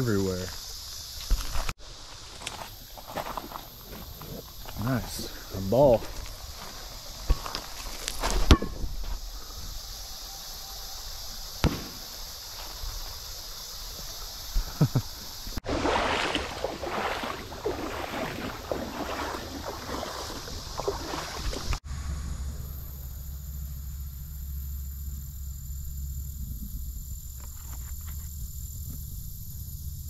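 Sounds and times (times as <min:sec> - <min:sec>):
steady high hiss: 0:00.0 - 0:15.6
water splashing and sloshing: 0:15.3 - 0:21.8.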